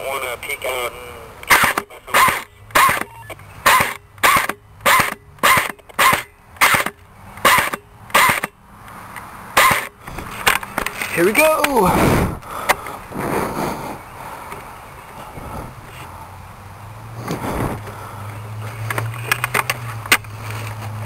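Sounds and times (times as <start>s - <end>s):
airsoft gun firing single shots: 1.5s - 8.5s.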